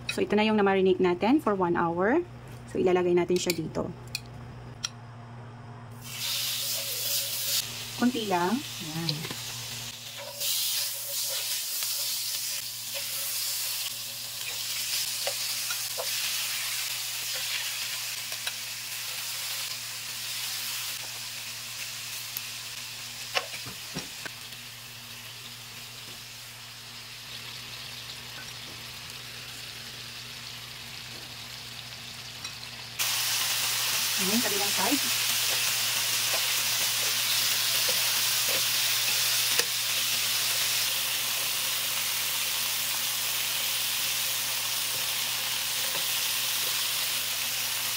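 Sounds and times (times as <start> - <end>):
steady low hum: 0.0 - 6.1
meat sizzling in a pan: 6.0 - 47.9.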